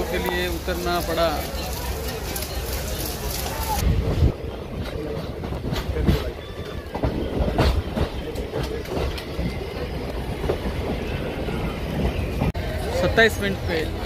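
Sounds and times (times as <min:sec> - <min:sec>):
train rumbling: 0:00.0 - 0:14.0
wheels clacking over rail joints: 0:00.0 - 0:14.0.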